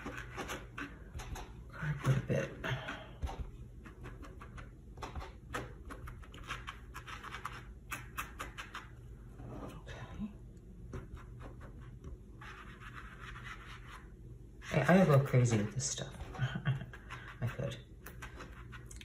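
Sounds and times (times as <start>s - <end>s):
sponge rubbing: 0.0s - 1.1s, 11.0s - 18.9s.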